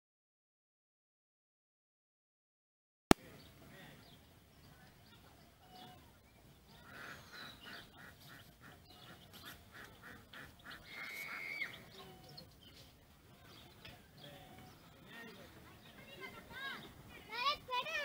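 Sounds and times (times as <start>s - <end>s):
waterfowl calling: 6.8s - 12.2s.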